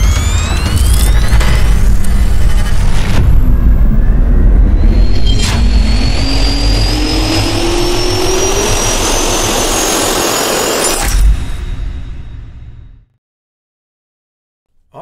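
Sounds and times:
deep rumble: 0.0s - 10.4s
jet turbine whine: 0.0s - 12.2s.

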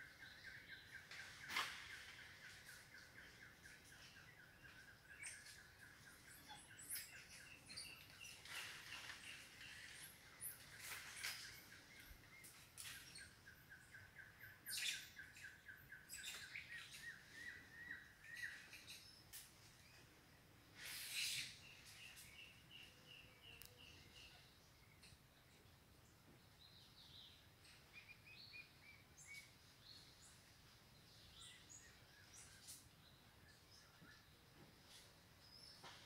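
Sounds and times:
animal chirps and squeaky calls: 20.8s - 22.2s.

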